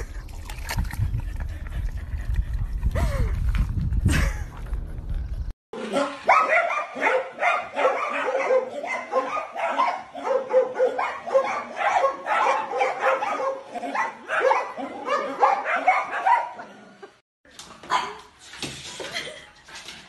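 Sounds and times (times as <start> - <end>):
dogs barking: 5.8 - 17.1.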